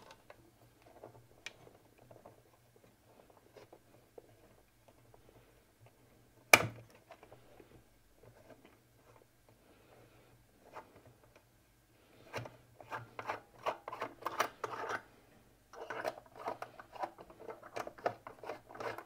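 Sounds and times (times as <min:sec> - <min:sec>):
screwdriver scraping and clicking: 0:12.3 - 0:15.0, 0:15.8 - 0:19.0.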